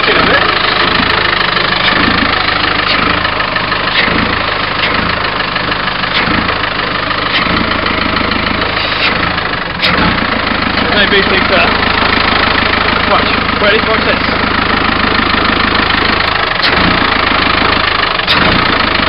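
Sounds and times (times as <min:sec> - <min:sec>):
diesel engine idling: 0:00.0 - 0:19.0
sharp click: 0:01.8 - 0:02.0, 0:03.9 - 0:04.2, 0:04.8 - 0:05.1, 0:06.1 - 0:06.5, 0:07.3 - 0:07.6.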